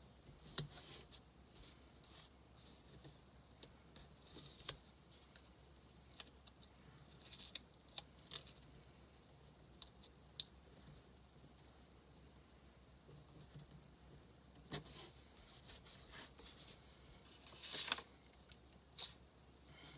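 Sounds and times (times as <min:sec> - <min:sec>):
soft paper rustling: 0:14.7 - 0:19.2.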